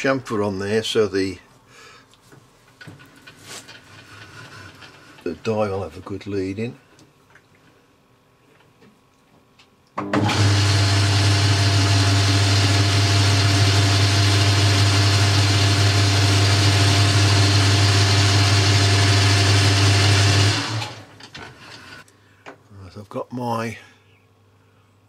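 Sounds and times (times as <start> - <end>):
metal lathe motor hum: 10.2 - 22.0.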